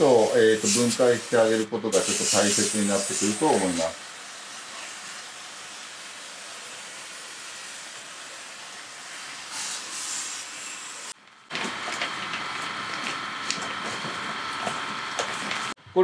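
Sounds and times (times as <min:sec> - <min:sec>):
water jet hissing on metal fins: 0:00.0 - 0:11.2.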